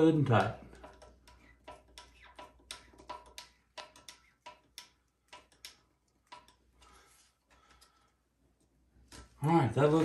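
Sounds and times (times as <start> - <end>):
screwdriver clicking: 0.4 - 6.8.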